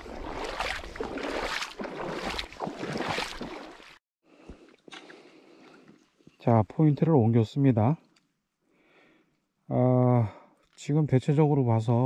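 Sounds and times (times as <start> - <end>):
seawater splashing from wading: 0.0 - 4.0
faint water sound: 0.0 - 6.8.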